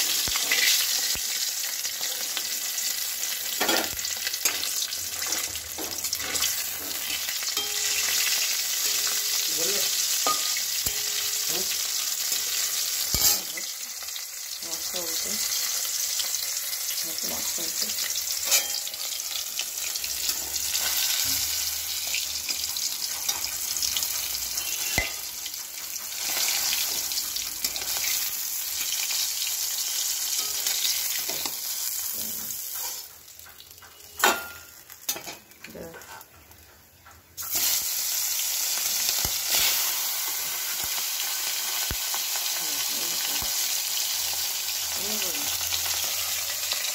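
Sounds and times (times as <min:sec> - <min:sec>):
fish sizzling in hot oil: 0:00.0 - 0:36.6, 0:37.4 - 0:46.9
metal spatula scraping a wok: 0:04.4 - 0:13.7, 0:18.3 - 0:19.2, 0:32.1 - 0:33.1.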